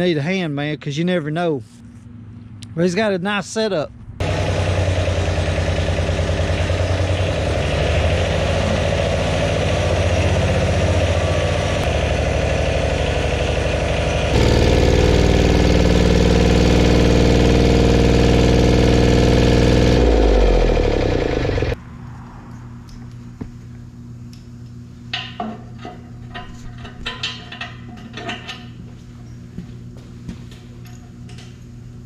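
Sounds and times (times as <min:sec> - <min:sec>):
motor running: 0:04.2 - 0:21.8.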